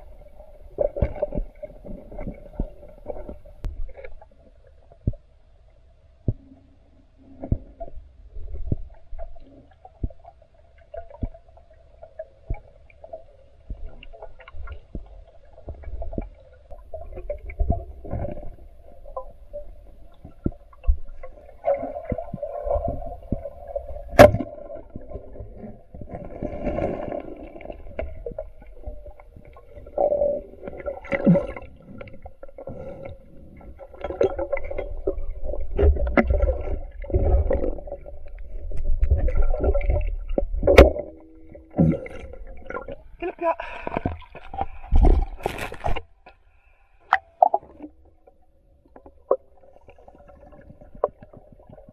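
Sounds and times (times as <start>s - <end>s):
underwater rumbling and bubbling: 0.0s - 51.9s.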